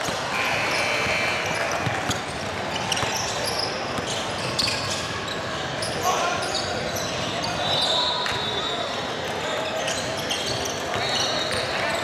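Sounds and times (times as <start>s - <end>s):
basketball bouncing on court: 0.0s - 5.0s
court noise: 0.0s - 12.0s
shoe squeaks: 0.0s - 12.0s.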